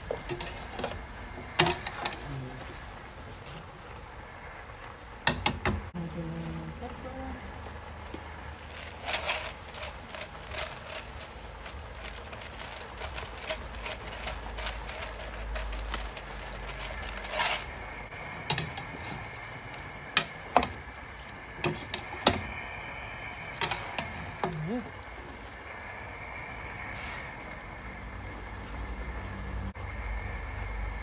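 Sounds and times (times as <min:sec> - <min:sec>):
metal spoon scraping cooking pot: 0:00.0 - 0:02.8, 0:13.1 - 0:22.6, 0:23.3 - 0:25.0
scratchy rustles: 0:08.6 - 0:22.5.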